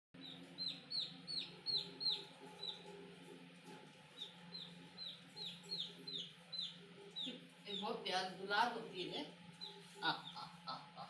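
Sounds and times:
baby chick peeping: 0.2 - 11.0.

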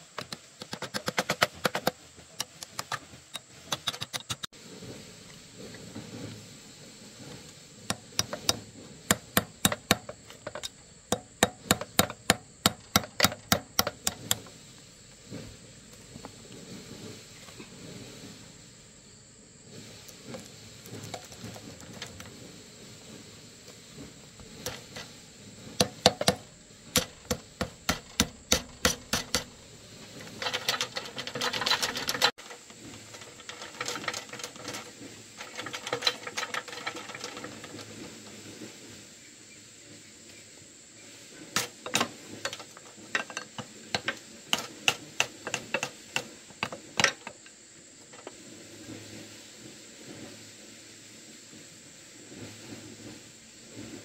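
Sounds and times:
metallic scraping: 0.7 - 38.6.

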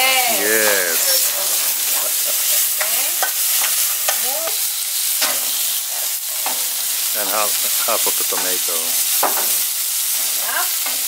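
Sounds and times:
meat sizzling in hot oil: 0.0 - 11.0.

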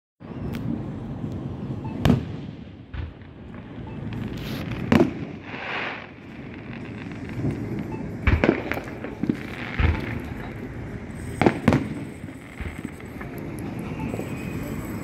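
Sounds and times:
firework shells booming: 2.0 - 14.9.

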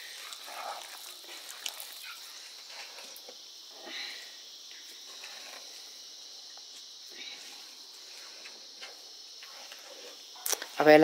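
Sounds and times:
hand kneading dough in a pot: 0.0 - 3.2.

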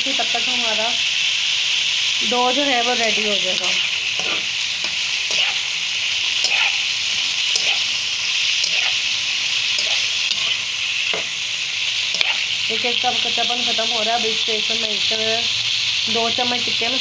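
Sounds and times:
chicken sizzling in a pan: 0.0 - 17.0
metal spatula scraping a pan: 3.6 - 5.7, 6.4 - 8.0, 8.6 - 9.1, 9.7 - 11.4, 12.1 - 12.6.

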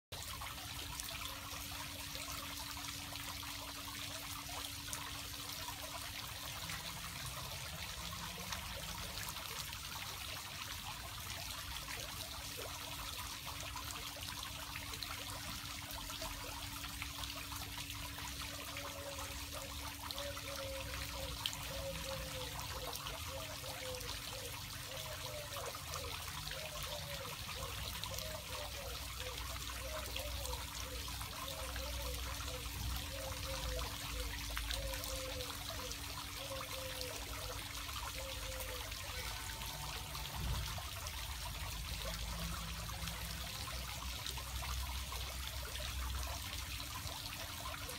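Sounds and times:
water fountain splashing: 0.1 - 47.9.

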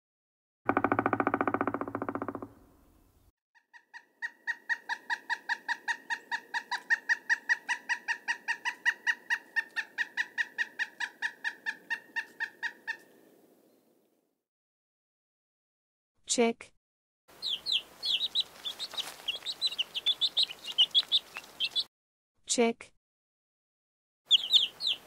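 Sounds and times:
woodpecker drumming: 0.7 - 3.0, 17.3 - 21.9, 24.3 - 25.0.

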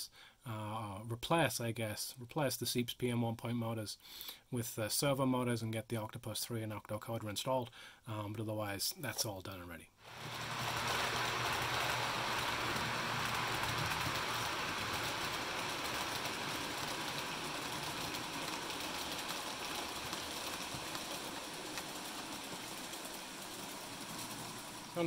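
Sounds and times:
model train whirring rumble: 10.1 - 25.0.

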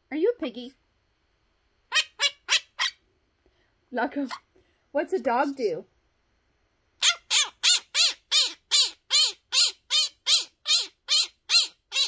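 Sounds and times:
parrot squawking: 1.9 - 3.0, 7.0 - 12.0.

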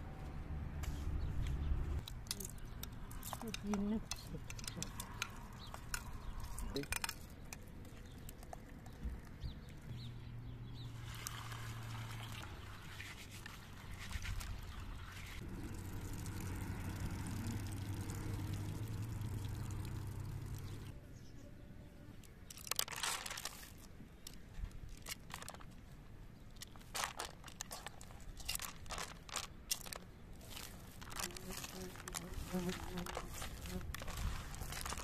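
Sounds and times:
water pouring and splashing: 10.9 - 20.9, 26.8 - 35.0
crackling: 22.5 - 25.9, 26.5 - 35.0.

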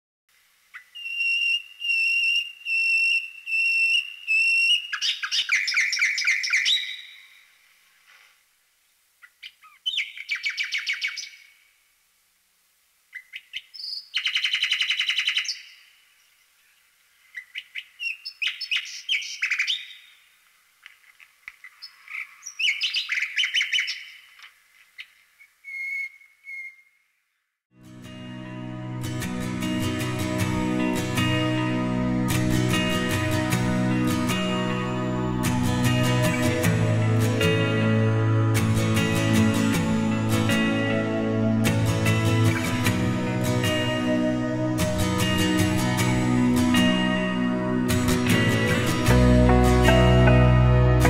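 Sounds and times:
bird whistling and trilling: 0.8 - 7.2, 9.6 - 11.4, 13.2 - 15.8, 17.3 - 20.0, 21.8 - 24.2, 25.4 - 27.0.

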